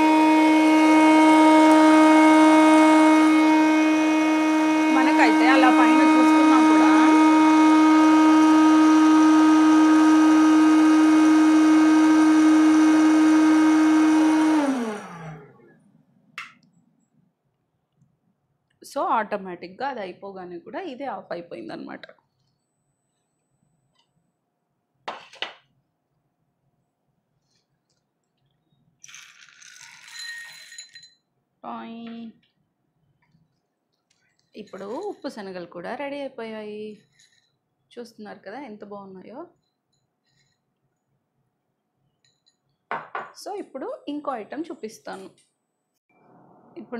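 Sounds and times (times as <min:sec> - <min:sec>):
motor winding down: 0:00.0 - 0:15.7
snack maker fan humming: 0:00.0 - 0:15.8
chickpeas rattling into a bowl: 0:29.0 - 0:31.0.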